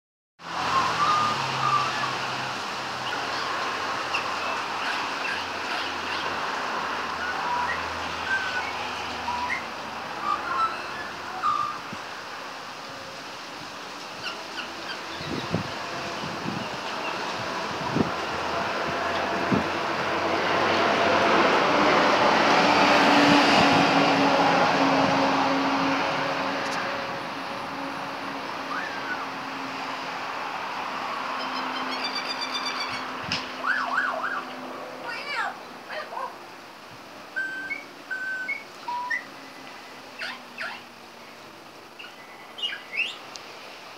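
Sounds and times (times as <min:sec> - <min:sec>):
traffic noise: 0:00.4 - 0:43.9
wind: 0:00.4 - 0:43.9
magpie whistled notes: 0:00.7 - 0:02.1, 0:07.2 - 0:11.8, 0:37.4 - 0:39.3
high bird chirps: 0:07.2 - 0:11.8, 0:31.4 - 0:34.2, 0:37.4 - 0:39.3
wind rush: 0:15.0 - 0:28.6
magpie calling: 0:40.2 - 0:40.9.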